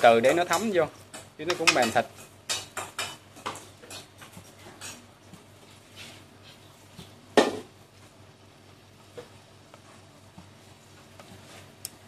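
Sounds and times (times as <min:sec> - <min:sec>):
chopsticks tapping on a metal pan: 0:00.3 - 0:04.1.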